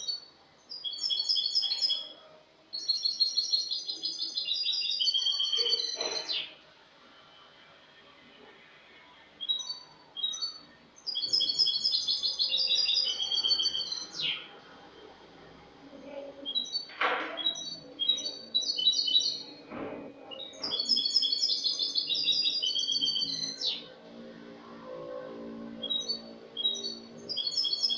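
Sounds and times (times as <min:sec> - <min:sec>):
bird twittering song: 0:00.0 - 0:06.6, 0:09.4 - 0:14.6, 0:16.4 - 0:23.9, 0:25.8 - 0:27.9.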